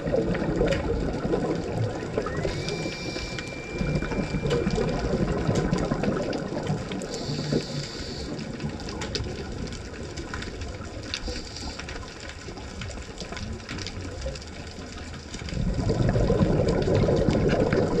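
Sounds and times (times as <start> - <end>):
exhaled bubbles underwater: 0.0 - 18.0
faint clicks: 0.1 - 18.0
inhalation hisses: 7.1 - 8.4.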